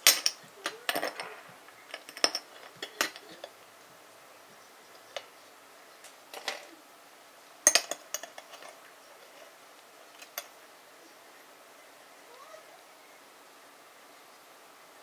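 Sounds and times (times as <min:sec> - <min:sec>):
spoon clinking in ceramic bowl: 0:01.9 - 0:03.5.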